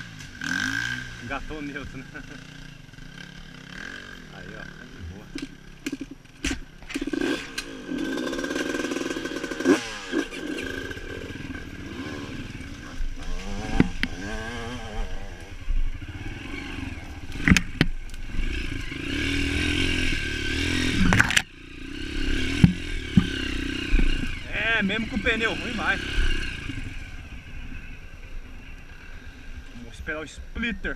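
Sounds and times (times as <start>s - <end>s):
dirt bike engine revving: 0.0s - 30.7s
knocks and clatter from bike: 5.3s - 9.7s, 17.4s - 18.1s, 22.5s - 24.3s.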